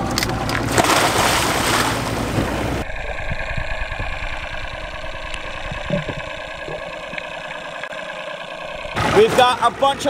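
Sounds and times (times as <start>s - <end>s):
dull underwater hum: 0.0s - 10.0s
splashing water: 0.6s - 2.8s.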